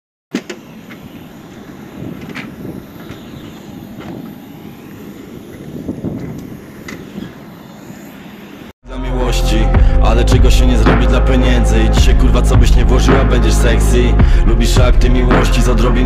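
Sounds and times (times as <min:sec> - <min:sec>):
aircraft rumble and whine: 0:00.4 - 0:08.8
wind on microphone: 0:00.9 - 0:08.1.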